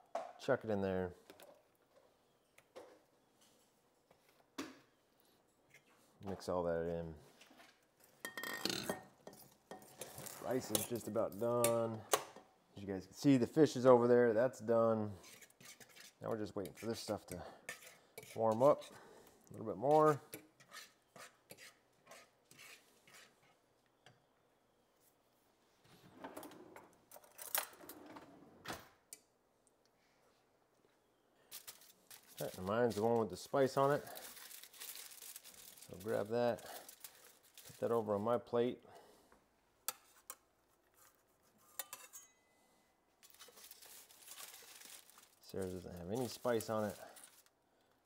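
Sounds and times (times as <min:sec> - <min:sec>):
kitchenware clattering: 0:08.2 - 0:11.8
aluminium foil rustling: 0:10.0 - 0:11.2, 0:31.4 - 0:38.2, 0:43.2 - 0:47.5
metal fork scraping a skillet: 0:15.2 - 0:19.0, 0:20.3 - 0:23.6, 0:41.6 - 0:42.5
metal spatula clinking on tray: 0:41.8 - 0:42.5.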